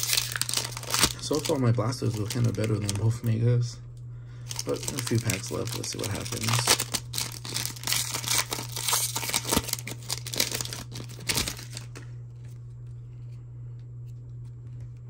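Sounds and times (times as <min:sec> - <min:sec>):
foil pack tearing and crinkling: 0:00.0 - 0:03.3, 0:04.5 - 0:12.0.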